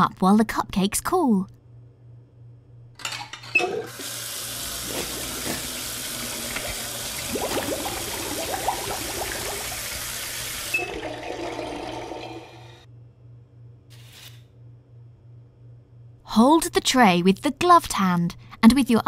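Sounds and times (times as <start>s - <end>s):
tap water running into sink: 3.6s - 12.7s.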